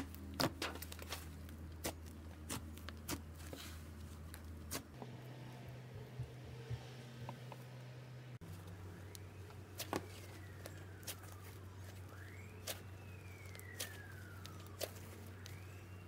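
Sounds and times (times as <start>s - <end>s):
steady low hum: 0.0s - 16.0s
faint siren wailing: 5.0s - 16.0s.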